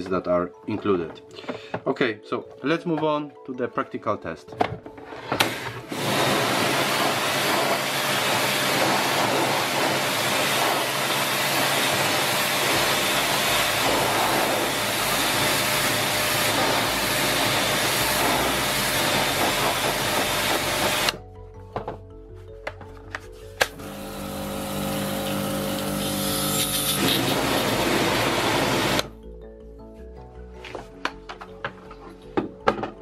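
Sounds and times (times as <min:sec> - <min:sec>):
pressure washer spraying water: 0:05.9 - 0:21.2, 0:23.7 - 0:29.1.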